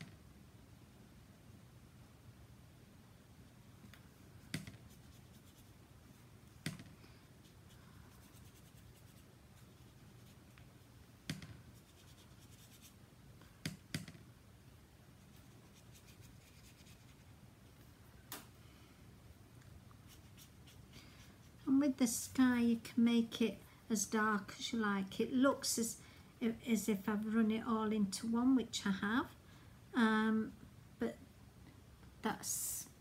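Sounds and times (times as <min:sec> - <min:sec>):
brush rubbing on card: 0:04.2 - 0:06.7, 0:07.3 - 0:10.9, 0:11.6 - 0:13.0, 0:15.2 - 0:17.4, 0:20.0 - 0:21.6.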